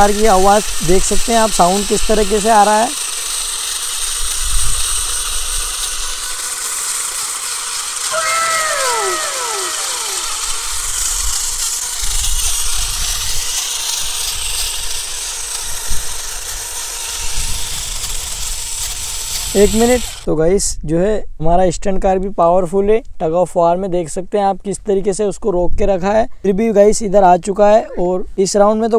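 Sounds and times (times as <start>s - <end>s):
toy car motors whining: 0.0s - 20.3s
brief falling pitched sound: 8.1s - 11.0s
wheels spinning on dirt: 12.3s - 20.2s.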